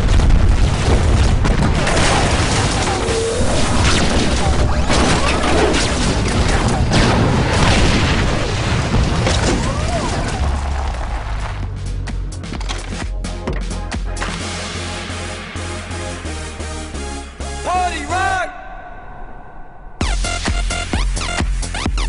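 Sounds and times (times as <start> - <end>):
explosions and booms: 0.0 - 11.2
music: 10.4 - 22.0.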